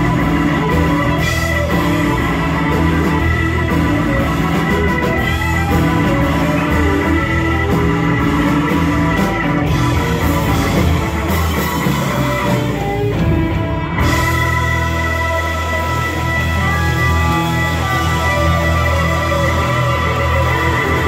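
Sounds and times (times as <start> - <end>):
blues-rock band playing: 0.0 - 21.0
electric guitar: 0.0 - 21.0.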